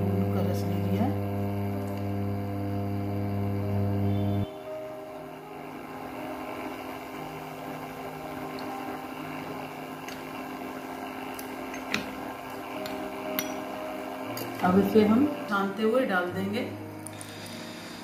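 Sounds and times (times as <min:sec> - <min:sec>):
low hum: 0:00.0 - 0:04.6.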